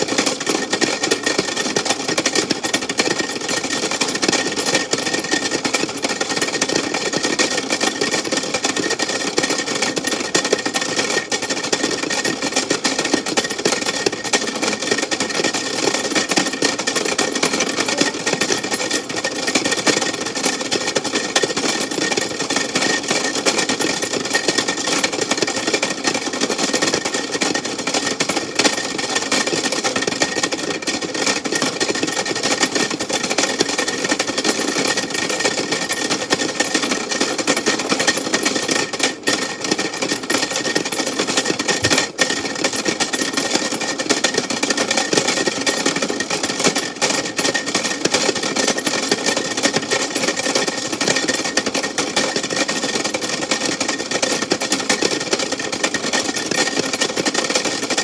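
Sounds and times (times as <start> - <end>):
toy washing machine running: 0.0 - 58.0.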